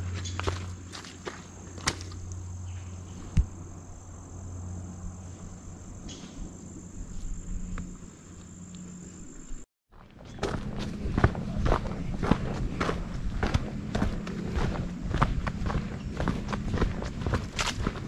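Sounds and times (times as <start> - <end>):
footsteps on a trail: 0.0 - 3.6, 7.0 - 18.0
insects trilling: 0.0 - 9.7.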